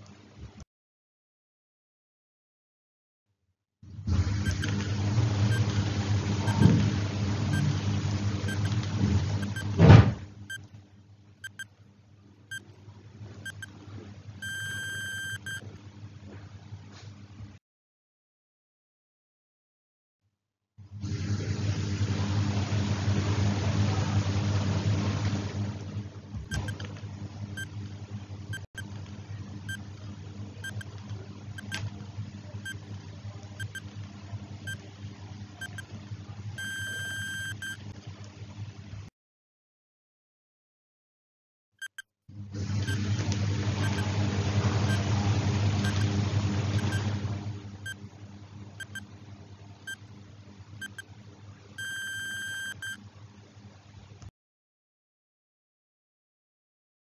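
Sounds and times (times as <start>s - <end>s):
faint low hum: 4.1s - 17.1s, 23.6s - 38.7s, 42.8s - 53.2s
short electronic beeps: 4.4s - 4.7s, 6.4s - 6.7s, 8.5s - 8.8s, 9.4s - 9.7s, 11.4s - 11.7s, 13.4s - 13.7s, 14.4s - 15.6s, 26.5s - 26.8s, 28.5s - 28.9s, 30.6s - 30.9s, 31.6s - 31.8s, 33.6s - 33.8s, 35.6s - 35.9s, 36.6s - 37.8s, 41.8s - 42.0s, 43.8s - 44.1s, 45.8s - 46.1s, 46.8s - 47.1s, 48.8s - 49.0s, 50.8s - 51.1s, 51.8s - 53.0s
long beep: 14.4s - 15.6s, 36.6s - 37.8s, 51.8s - 53.0s.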